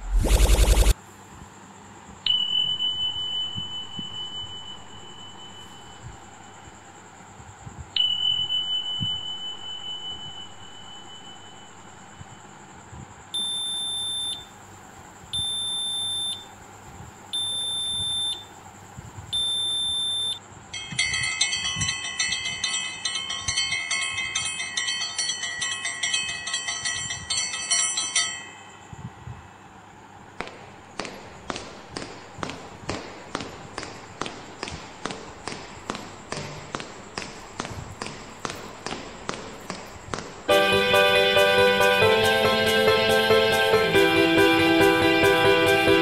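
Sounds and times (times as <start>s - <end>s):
fast electronic ringing tune: 0.0s - 0.9s
electronic beeps: 0.0s - 1.0s.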